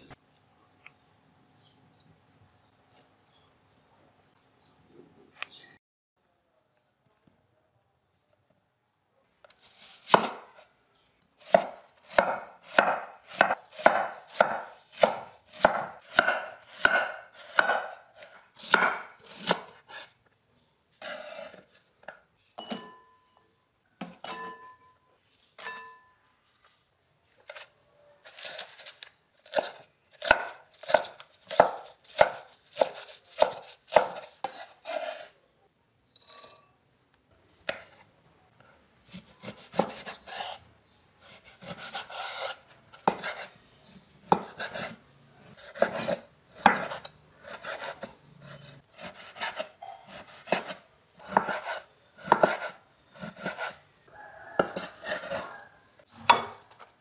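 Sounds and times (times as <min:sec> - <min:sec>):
knife chopping on wooden board: 0:10.1 - 0:10.6, 0:11.4 - 0:20.1, 0:29.4 - 0:35.2, 0:39.1 - 0:40.6, 0:41.2 - 0:43.5, 0:44.2 - 0:45.0, 0:45.6 - 0:48.1, 0:48.9 - 0:53.8, 0:54.5 - 0:55.5.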